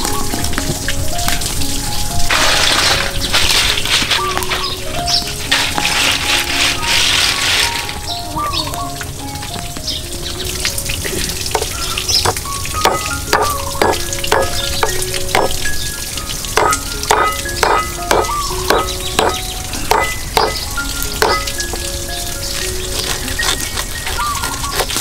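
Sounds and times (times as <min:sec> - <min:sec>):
cleaver chopping on wooden board: 0:11.6 - 0:15.6, 0:16.6 - 0:20.6, 0:21.2 - 0:21.5.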